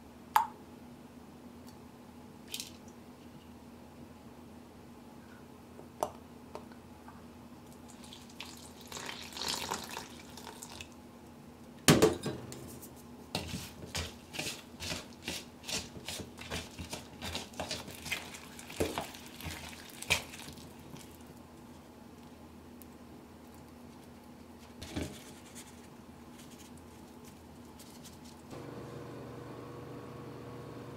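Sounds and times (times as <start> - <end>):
spoon stirring thick dough: 12.6 - 21.8.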